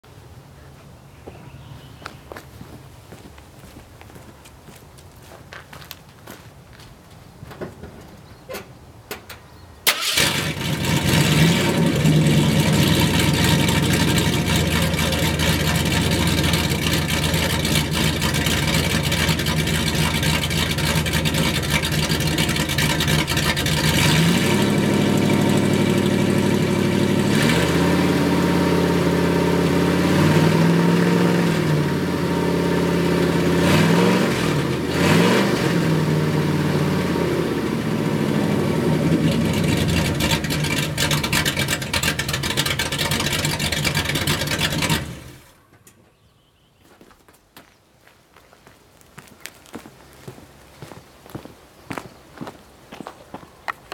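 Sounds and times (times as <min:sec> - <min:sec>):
loud engine idling and revving: 0:10.0 - 0:45.6.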